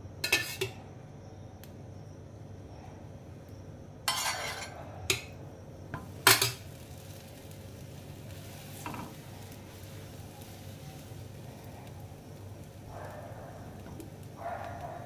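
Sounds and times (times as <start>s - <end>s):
metal utensil scraping griddle: 0.2s - 0.8s, 4.1s - 5.2s, 6.2s - 6.6s
utensil clinking on griddle: 0.2s - 0.8s, 4.0s - 7.6s, 8.4s - 12.2s.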